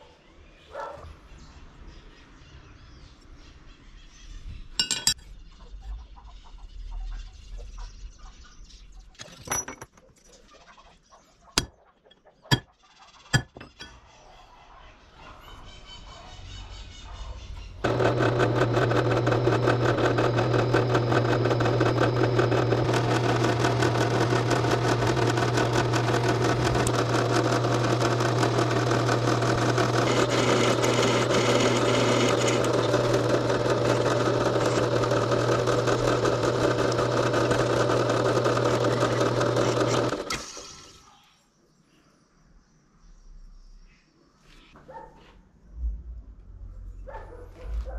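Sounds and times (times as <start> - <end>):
drill press drilling steel: 17.8 - 40.9.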